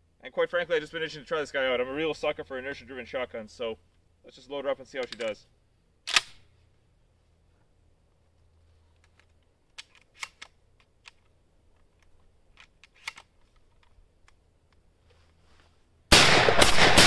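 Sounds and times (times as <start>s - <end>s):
shotgun loading metallic clicks: 4.9s - 5.4s, 6.0s - 6.5s, 8.9s - 14.8s.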